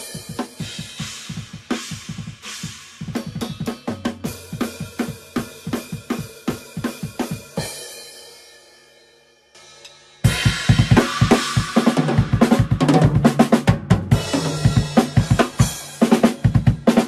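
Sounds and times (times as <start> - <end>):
drum kit played fast: 0.0 - 8.4, 9.8 - 17.0.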